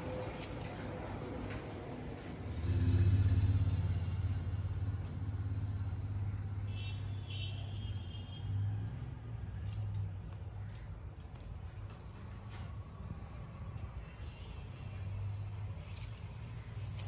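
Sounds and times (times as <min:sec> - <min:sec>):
low mechanical rumble: 0:00.0 - 0:06.7
scissor snips: 0:15.7 - 0:17.0.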